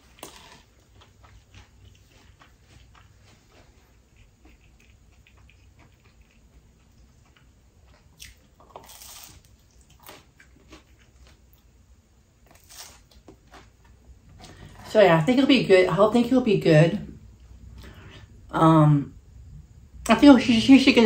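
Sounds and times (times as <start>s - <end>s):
person chewing pizza: 0.0s - 11.8s, 12.4s - 14.8s.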